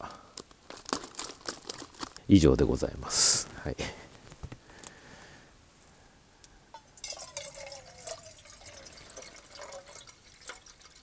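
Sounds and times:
small crackles: 0:00.0 - 0:02.4, 0:03.4 - 0:05.0
water pouring from a bottle: 0:06.9 - 0:11.0.

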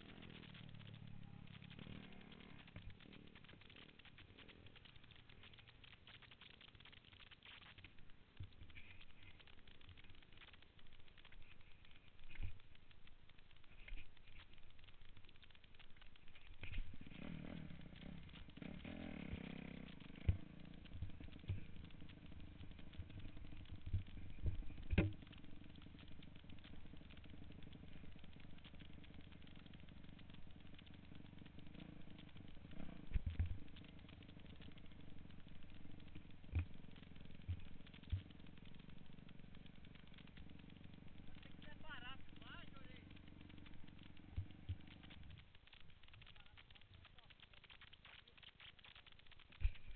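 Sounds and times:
dirt bike engine running: 0:00.0 - 0:49.9.

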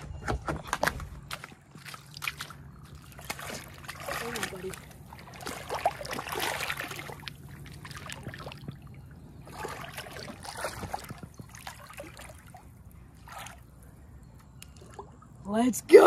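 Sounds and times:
shallow water splashing: 0:01.2 - 0:13.9.

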